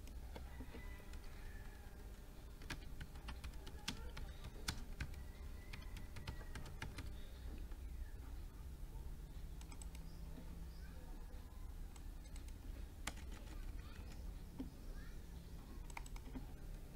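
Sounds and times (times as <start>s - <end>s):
typing on computer keyboard: 2.6s - 7.1s, 9.6s - 10.0s, 11.9s - 14.2s, 15.8s - 16.4s.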